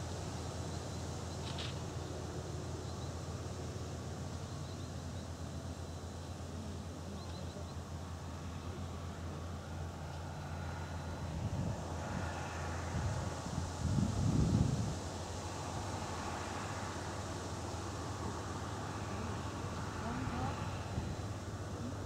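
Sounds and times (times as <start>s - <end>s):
wind buffeting microphone: 11.3s - 16.1s.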